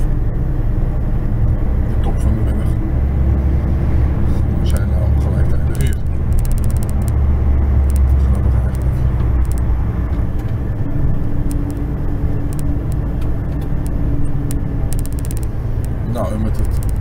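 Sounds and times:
steady humming tone: 0:00.0 - 0:17.0
truck engine and road noise: 0:00.0 - 0:17.0
light ticks: 0:07.8 - 0:09.7, 0:12.5 - 0:17.0.

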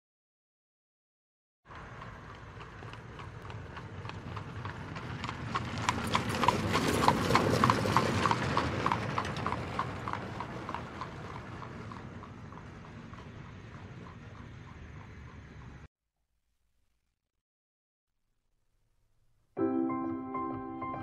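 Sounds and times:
horse hooves on pavement: 0:01.7 - 0:15.9.

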